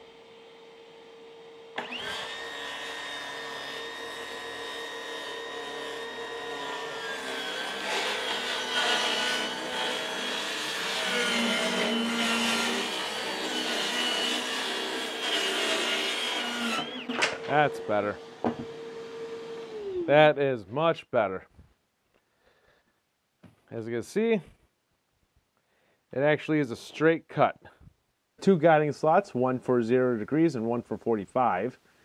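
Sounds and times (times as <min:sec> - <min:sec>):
dust extraction vacuum running: 0:00.0 - 0:08.8, 0:16.8 - 0:20.2
circular saw cutting plywood: 0:01.7 - 0:20.3.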